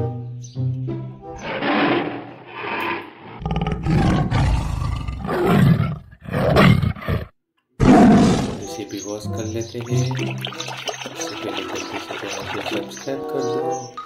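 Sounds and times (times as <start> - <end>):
tiger roaring and growling: 1.3 - 8.7.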